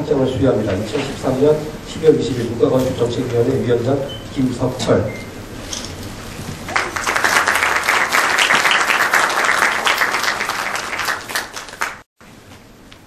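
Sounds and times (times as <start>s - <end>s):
audience applauding: 6.6s - 12.1s.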